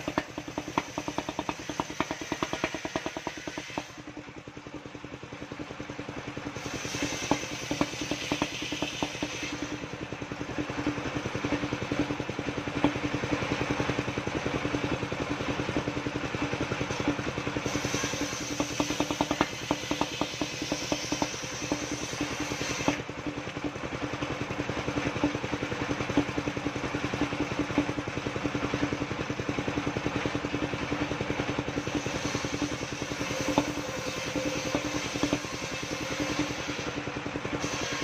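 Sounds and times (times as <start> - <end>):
circular saw cutting wood: 0.0 - 4.2, 6.5 - 10.2, 16.8 - 23.1, 31.6 - 38.0
sawmill engine running: 0.0 - 38.0.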